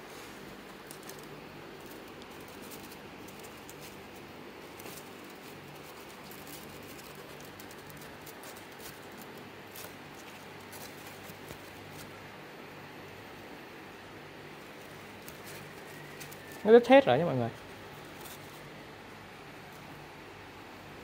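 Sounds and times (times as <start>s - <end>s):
low background hum: 0.0s - 21.0s
foam crackling and squeaking: 0.6s - 12.2s, 14.6s - 18.8s.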